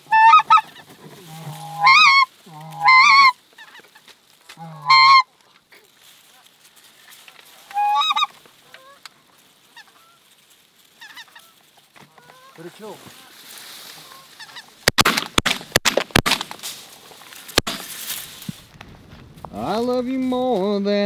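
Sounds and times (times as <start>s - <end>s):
goose call honks: 0.0s - 3.8s, 4.5s - 5.3s, 7.7s - 9.0s.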